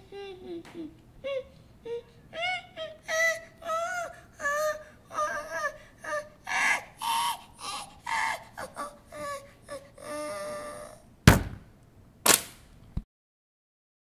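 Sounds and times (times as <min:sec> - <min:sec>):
cartoon voice cries and whimpers: 0:00.0 - 0:11.1
sharp loud thuds: 0:11.3 - 0:11.7.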